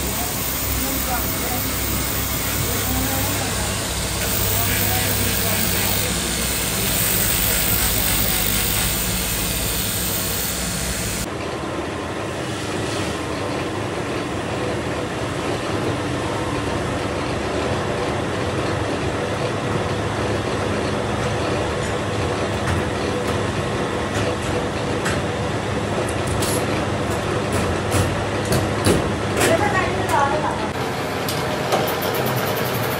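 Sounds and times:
belt grinder grinding steel: 0:00.0 - 0:11.3
workshop machine noise: 0:00.0 - 0:32.9.

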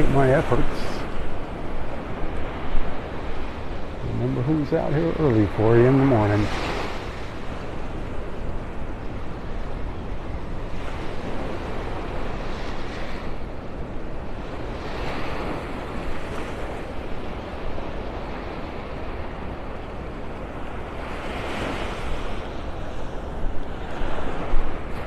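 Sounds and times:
surf washing onto sandy beach: 0:00.0 - 0:08.2
wind rumble on microphone: 0:00.0 - 0:25.0.

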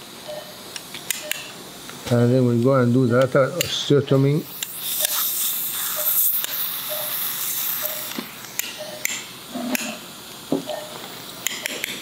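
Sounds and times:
steady hiss: 0:00.0 - 0:12.0
patient monitor beeping: 0:00.2 - 0:00.6, 0:06.0 - 0:08.2, 0:08.8 - 0:10.0, 0:10.6 - 0:11.0.

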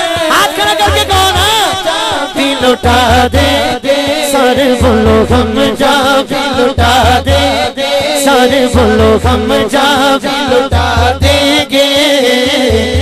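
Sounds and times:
low pulsing beat: 0:00.0 - 0:13.0
man singing into a microphone: 0:00.0 - 0:13.0.

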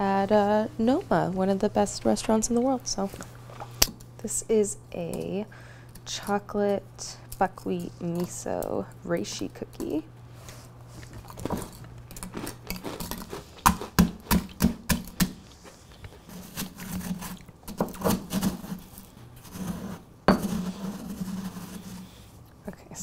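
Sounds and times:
gritty grinding of crumbs: 0:10.9 - 0:14.6, 0:15.4 - 0:22.3.

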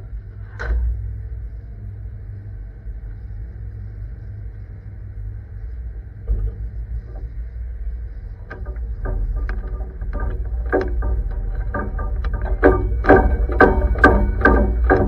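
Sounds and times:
truck engine rumbling: 0:00.8 - 0:15.0
truck body rattling and clanking: 0:08.5 - 0:15.0.

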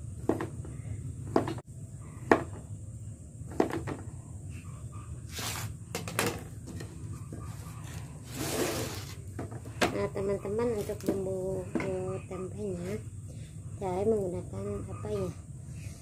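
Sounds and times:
scraping rustle: 0:07.4 - 0:09.4.

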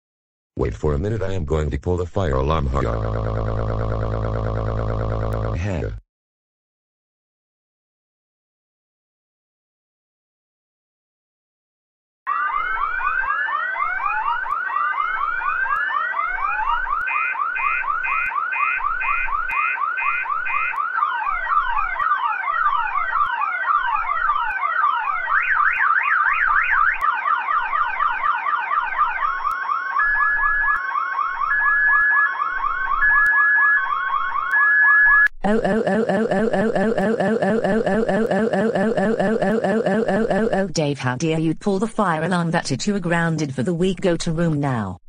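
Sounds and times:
electronic alarm siren: 0:02.8 - 0:05.8, 0:12.3 - 0:40.8.

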